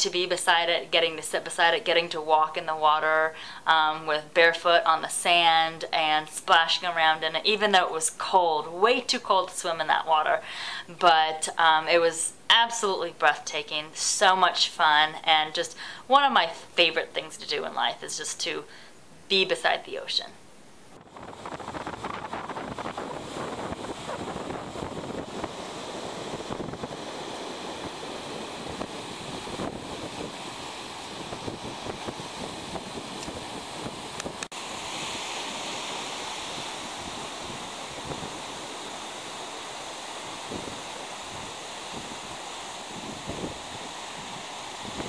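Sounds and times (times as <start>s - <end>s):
wind buffeting microphone: 21.0s - 45.0s
waves breaking on beach: 21.1s - 45.0s.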